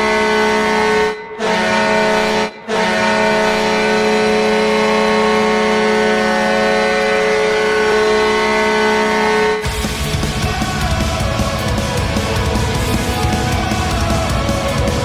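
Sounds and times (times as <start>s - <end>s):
goal horn blasting: 0.0s - 9.7s.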